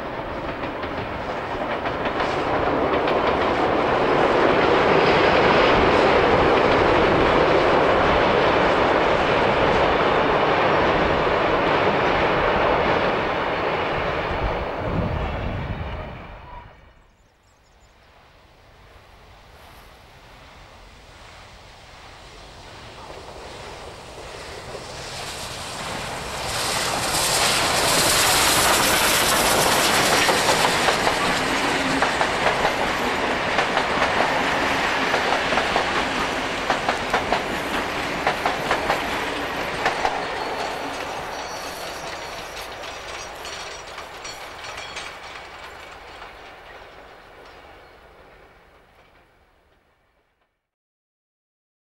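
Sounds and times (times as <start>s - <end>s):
steam locomotive passing: 0.0s - 17.1s, 17.8s - 50.6s
carriage wheels clacking on rails: 26.9s - 47.8s.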